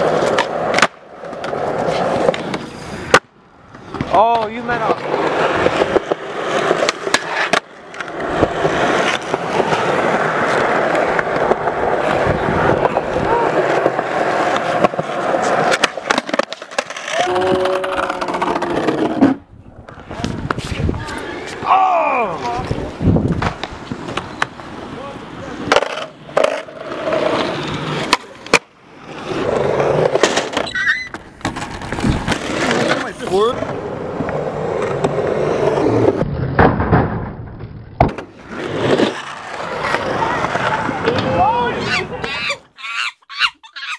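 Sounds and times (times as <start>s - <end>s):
skateboard clacks: 0.0s - 21.7s, 25.6s - 28.8s
skateboard wheels rolling on concrete: 0.0s - 43.9s.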